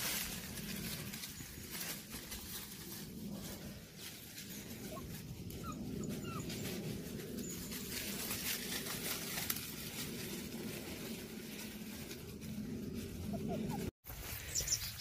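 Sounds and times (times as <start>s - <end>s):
puppies rustling dry leaves: 0.0s - 15.0s
puppy whimpering: 4.8s - 6.7s, 13.3s - 13.9s.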